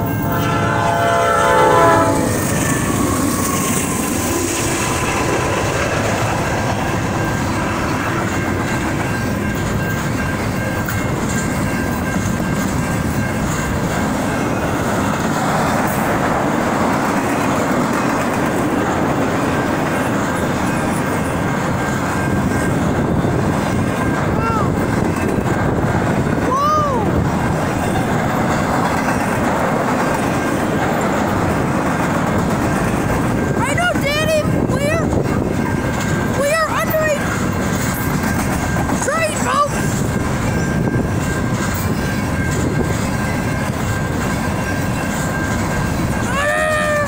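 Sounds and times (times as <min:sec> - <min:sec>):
train cars rumbling past: 0:00.0 - 0:47.0
train horn: 0:00.1 - 0:05.6
wheels clacking on rail joints: 0:02.3 - 0:26.5, 0:27.2 - 0:47.0.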